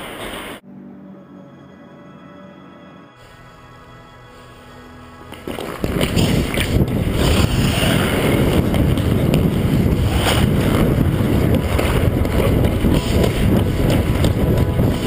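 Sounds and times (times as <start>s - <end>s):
skate blades scraping on ice: 5.3s - 15.0s
wind buffeting microphone: 5.8s - 15.0s.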